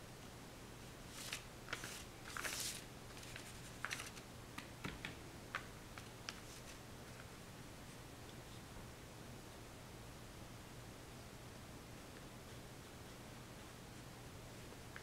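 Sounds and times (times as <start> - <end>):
paintbrush swishing on paper: 1.1 - 4.2.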